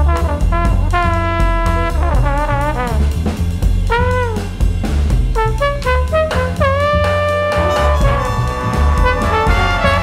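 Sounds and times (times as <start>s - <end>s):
bass: 0.0s - 10.0s
drum kit: 0.0s - 10.0s
trumpets playing: 3.9s - 4.5s, 5.4s - 10.0s.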